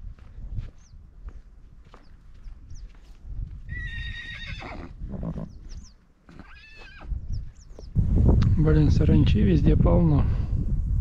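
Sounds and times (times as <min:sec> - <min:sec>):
animal calling: 0:03.7 - 0:07.8
low rumble: 0:07.1 - 0:11.0.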